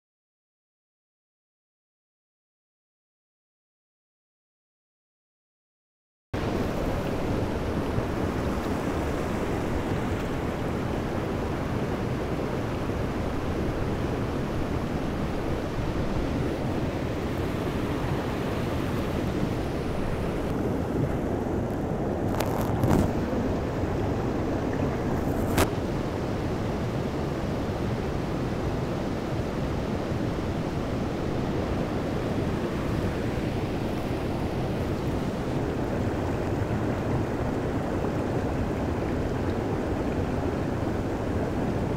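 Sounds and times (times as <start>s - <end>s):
stream water rushing: 6.4s - 41.9s.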